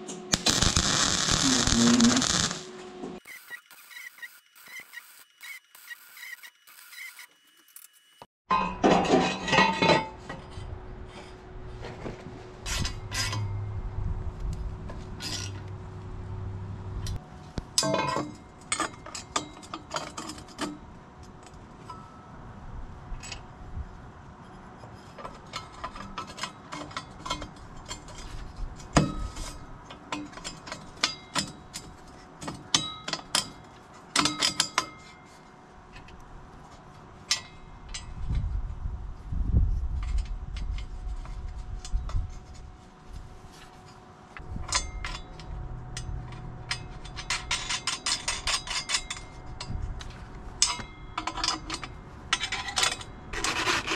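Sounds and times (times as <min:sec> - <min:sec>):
metal tools clinking on metal: 0:08.5 - 0:10.6, 0:17.8 - 0:20.8, 0:44.5 - 0:49.8, 0:50.6 - 0:53.5.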